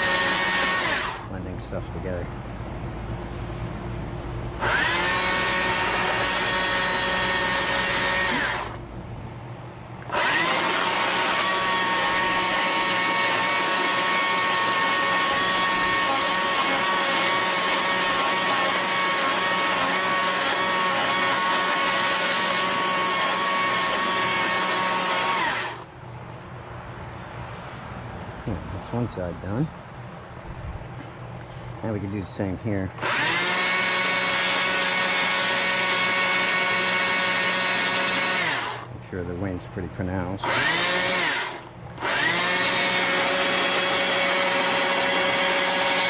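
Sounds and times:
power carving tool whining: 0.0s - 1.3s, 4.6s - 8.8s, 10.1s - 25.9s, 33.0s - 38.9s, 40.4s - 46.0s.

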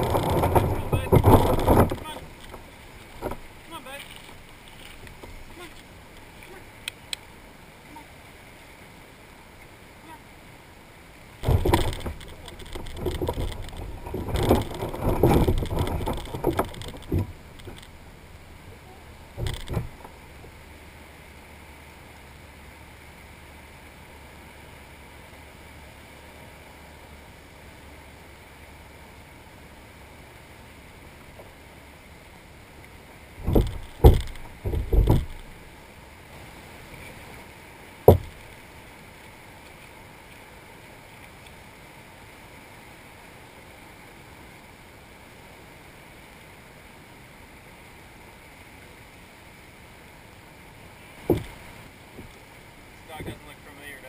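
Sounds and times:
gear knocking on plastic kayak: 0.0s - 2.6s, 11.4s - 17.9s, 19.4s - 20.2s, 33.4s - 35.6s, 38.1s - 38.4s, 51.2s - 52.3s
water: 0.0s - 54.0s
wind: 0.0s - 54.0s.

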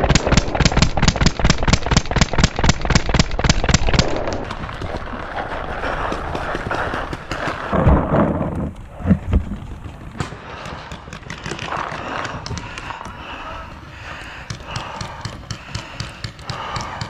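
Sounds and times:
paintball marker firing: 0.0s - 4.6s, 10.2s - 17.0s.

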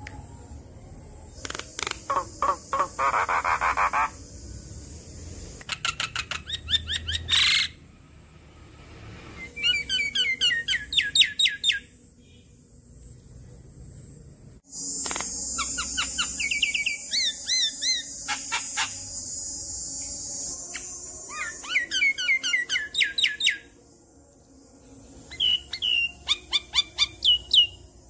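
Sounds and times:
bird chirping and chattering: 1.4s - 4.2s, 5.6s - 7.7s
steady high hiss: 1.4s - 5.7s, 12.5s - 21.4s.

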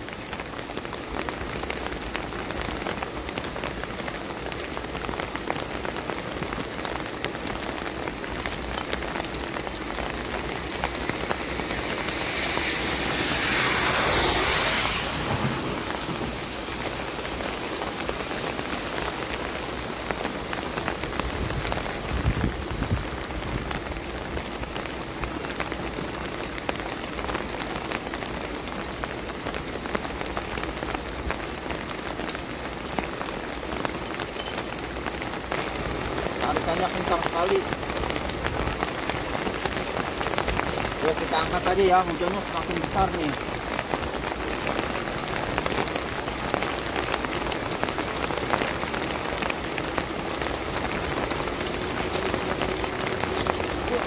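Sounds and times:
steady rain falling: 0.0s - 54.0s
rushing noise: 9.2s - 18.6s.

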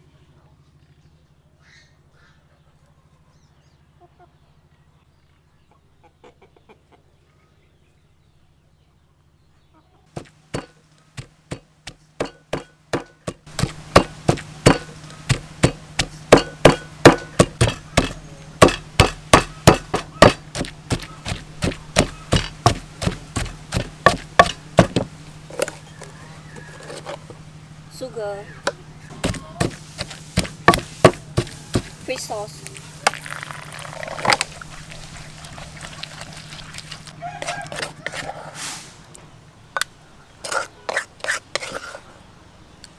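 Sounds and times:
pestle pounding in mortar: 10.2s - 25.8s, 28.7s - 32.4s.

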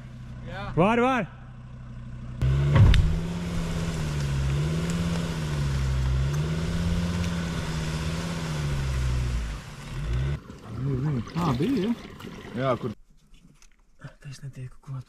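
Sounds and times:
diesel car engine revving under load: 1.4s - 11.2s.

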